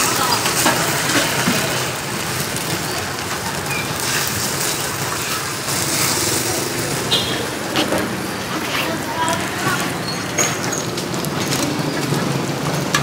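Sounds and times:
batter sizzling in hot pan: 0.0 - 7.6.

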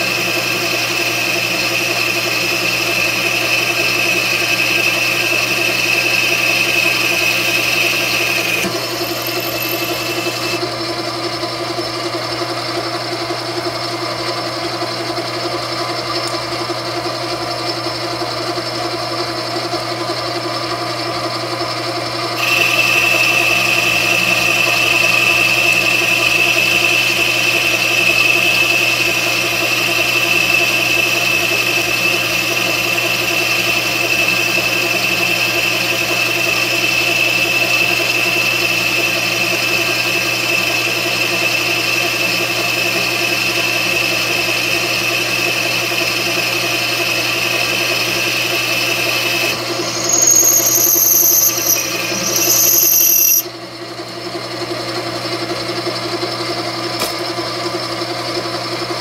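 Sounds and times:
high-pitched cutting whine: 0.0 - 10.7, 22.3 - 53.6
lathe motor hum: 0.0 - 53.5.

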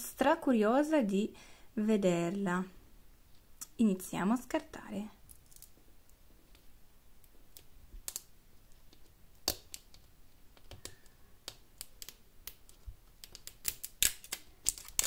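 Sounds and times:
fingernails scratching plastic wrapping: 13.2 - 15.0.

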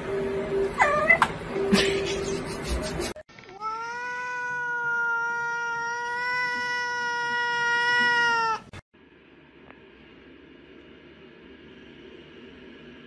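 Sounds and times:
cat meowing: 3.5 - 8.7.

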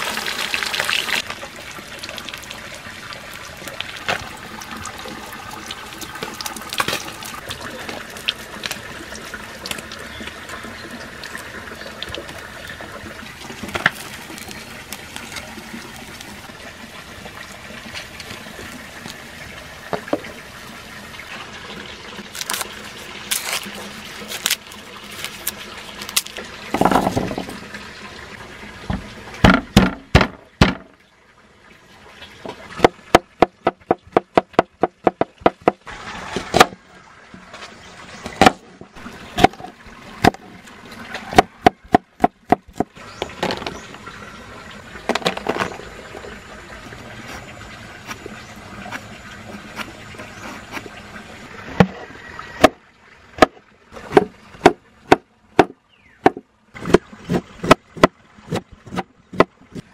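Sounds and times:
fish sizzling in oil: 0.0 - 12.6.

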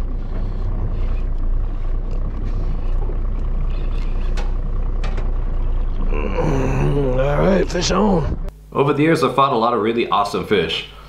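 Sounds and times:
boat engine humming: 0.0 - 8.8.

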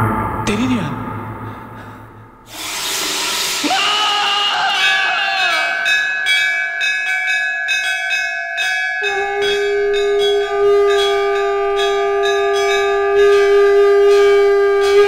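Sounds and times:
deep horn-like tone: 0.0 - 3.7, 9.0 - 15.0
brass bells clanging: 3.2 - 15.0.

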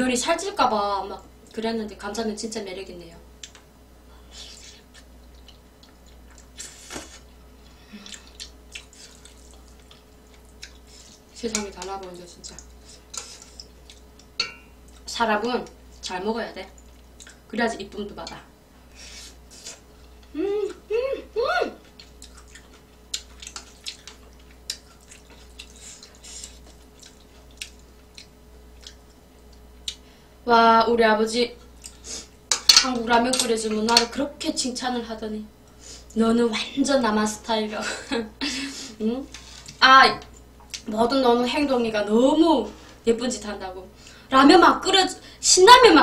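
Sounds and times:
utensils clicking on metal pan: 32.5 - 34.1.

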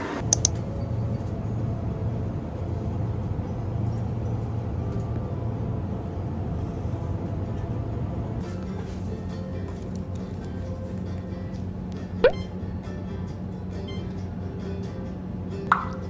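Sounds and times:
store background hum: 0.0 - 16.0
short click: 0.3 - 0.6.

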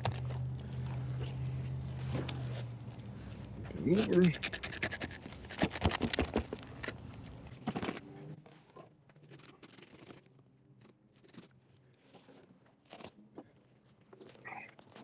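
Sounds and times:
knife sawing through fish bone: 4.2 - 6.2.

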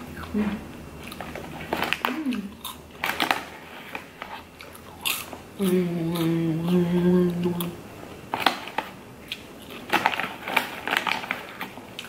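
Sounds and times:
person crunching popcorn: 0.0 - 12.0
plastic snack bag rustling: 1.1 - 5.4, 8.2 - 12.0
person humming: 2.1 - 2.6, 5.6 - 7.8.

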